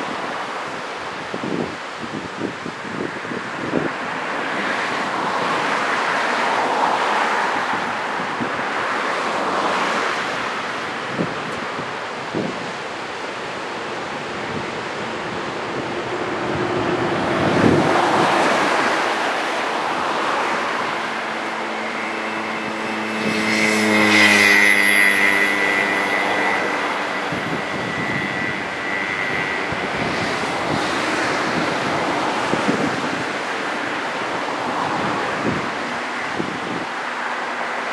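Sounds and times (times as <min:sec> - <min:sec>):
wind buffeting microphone: 0:00.0 - 0:37.2
ocean surf breaking: 0:00.0 - 0:37.9
engine drone: 0:10.2 - 0:37.9.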